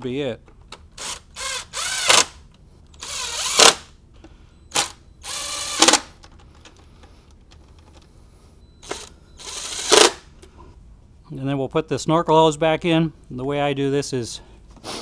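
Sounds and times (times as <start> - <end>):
electric screwdriver whirring: 1.0 - 2.4, 3.0 - 3.9, 4.7 - 6.1, 8.8 - 10.2.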